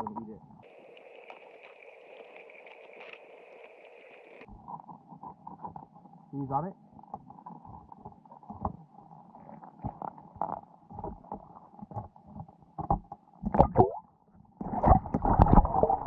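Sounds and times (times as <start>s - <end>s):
muffled underwater water movement: 0.0s - 16.0s
underwater knocks: 14.6s - 16.0s.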